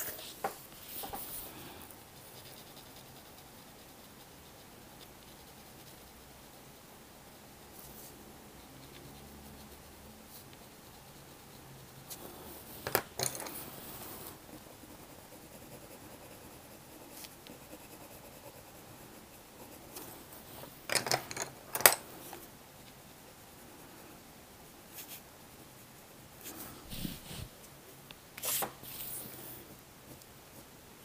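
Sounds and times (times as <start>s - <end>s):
pencil scratching on paper: 0.0s - 6.7s, 13.5s - 20.7s, 26.4s - 27.5s
pencils clattering: 12.8s - 13.7s, 20.8s - 22.1s.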